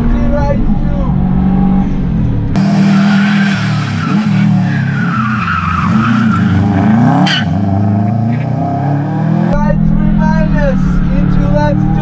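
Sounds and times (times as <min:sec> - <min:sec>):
race car engine revving: 0:01.1 - 0:12.0
tyres squealing: 0:02.6 - 0:08.6.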